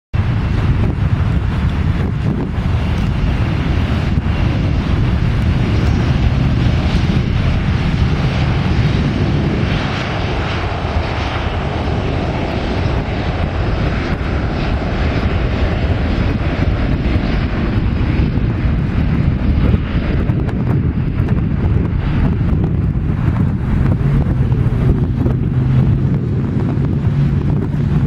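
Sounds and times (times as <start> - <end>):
jet engines at takeoff: 0.2 - 28.0.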